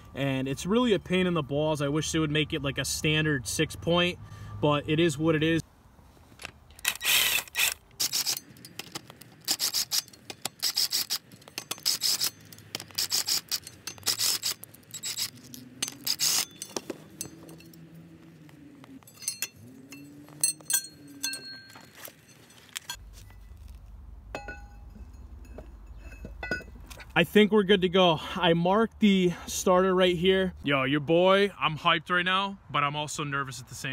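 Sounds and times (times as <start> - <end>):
metallic clinks of bolts: 8.1 - 17.8, 19.0 - 23.0, 24.3 - 27.1.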